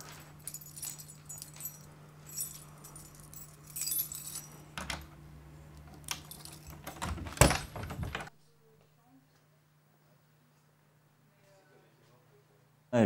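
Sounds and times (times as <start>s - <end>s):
small metal items jingling: 0.0s - 5.1s, 6.0s - 8.2s
low steady hum: 0.0s - 10.0s.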